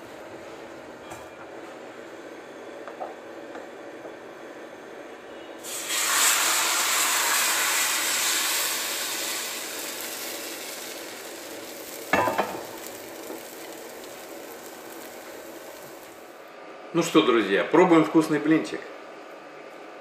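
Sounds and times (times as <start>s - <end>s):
batter sizzling in a pan: 5.6s - 16.4s
pan knocking on stove grate: 12.1s - 12.8s.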